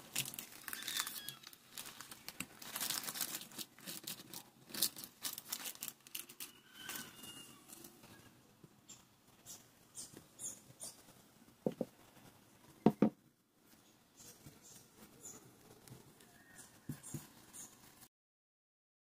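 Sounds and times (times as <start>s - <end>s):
plastic wrapper crinkling: 0.0s - 8.0s.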